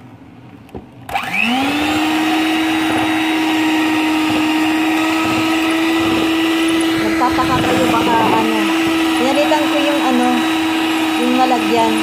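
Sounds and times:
electric hand mixer whine: 0:01.1 - 0:12.0
beaters whisking batter in bowl: 0:01.6 - 0:12.0.

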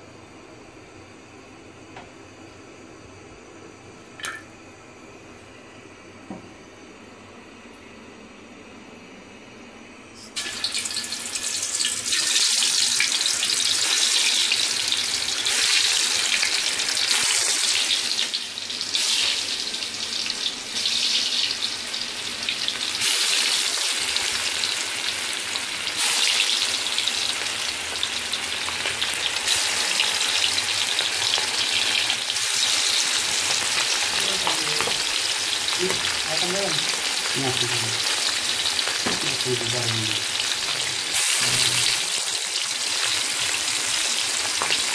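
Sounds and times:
fish frying in hot oil: 0:10.4 - 0:44.9.

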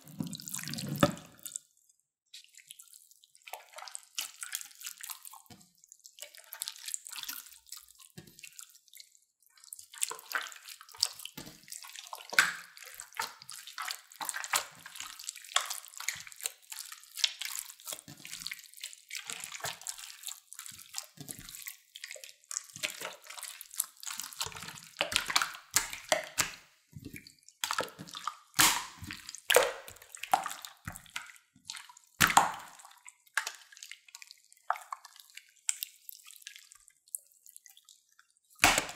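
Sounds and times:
slime squelching by hand: 0:00.0 - 0:01.7, 0:02.3 - 0:38.9.

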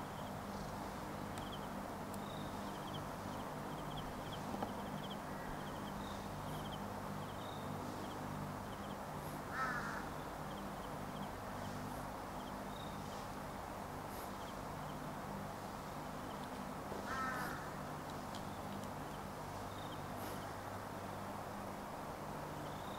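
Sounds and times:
steady low hum: 0:00.0 - 0:22.9
harsh bird calls: 0:01.2 - 0:13.2, 0:17.0 - 0:20.6
faint high chirping: 0:01.3 - 0:09.1, 0:10.0 - 0:13.2, 0:22.5 - 0:22.9.

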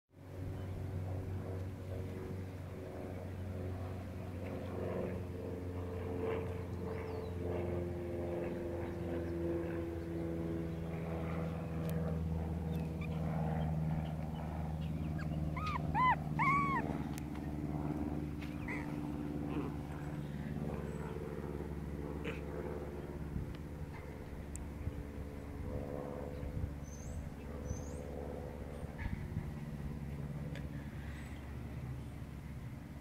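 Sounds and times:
engine hum: 0:00.2 - 0:33.0
puppy crying: 0:15.0 - 0:17.0.

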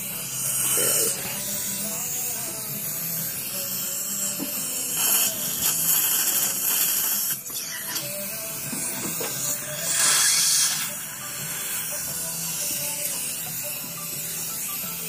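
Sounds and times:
dental handpiece whine: 0:00.0 - 0:15.0
suction tip: 0:04.3 - 0:15.0
water spray hissing: 0:09.8 - 0:11.0.

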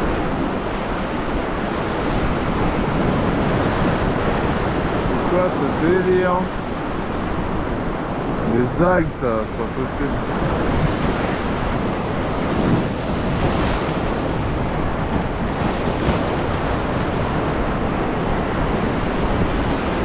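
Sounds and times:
surf breaking on rocks: 0:08.2 - 0:20.0.

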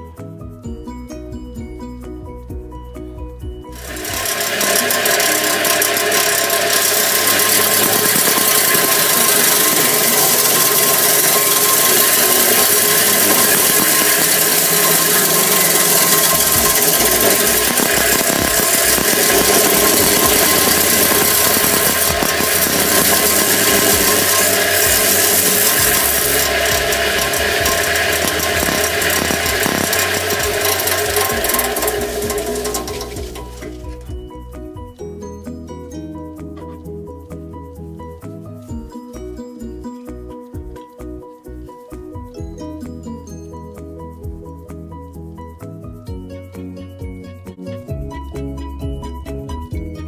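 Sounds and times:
belt sander running: 0:03.8 - 0:34.0.

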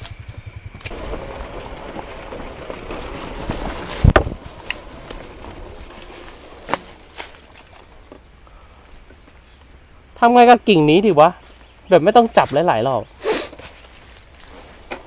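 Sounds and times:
dirt bike engine chugging: 0:00.0 - 0:07.1.

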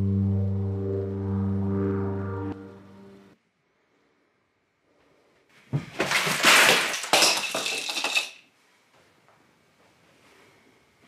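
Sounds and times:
puzzle pieces crashing and rattling: 0:05.9 - 0:08.5.

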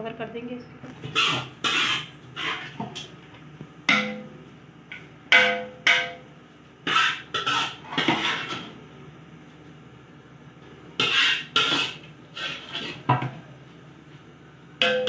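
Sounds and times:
spoon scraping pot: 0:01.0 - 0:03.0, 0:06.9 - 0:08.7, 0:11.0 - 0:13.1.

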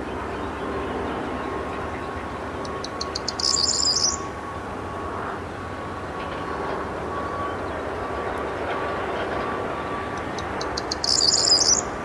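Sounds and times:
bird singing a jangling trill: 0:02.7 - 0:04.2, 0:10.2 - 0:11.9.

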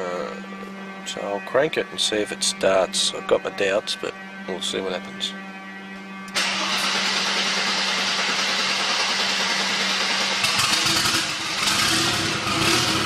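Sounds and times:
car engine cranking and idling: 0:06.3 - 0:13.0.

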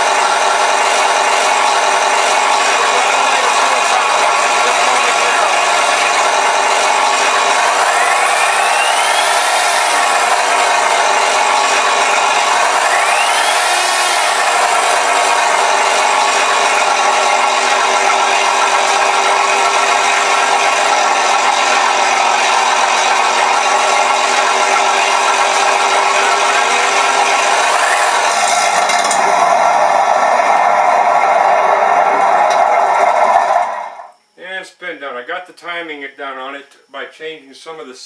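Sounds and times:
simulated aircraft engine: 0:02.1 - 0:22.7.

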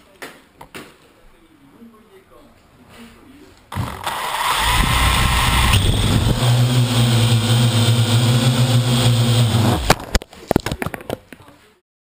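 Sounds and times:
quadcopter motors humming: 0:04.0 - 0:09.9.

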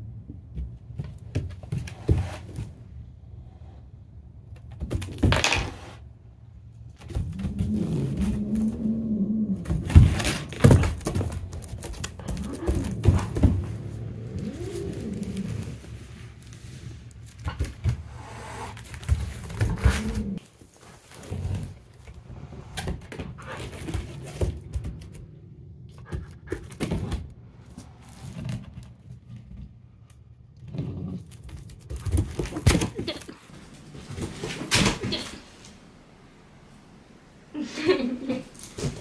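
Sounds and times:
low growls: 0:07.1 - 0:10.6, 0:12.1 - 0:17.2, 0:18.0 - 0:20.5
cat hissing: 0:12.2 - 0:16.0.

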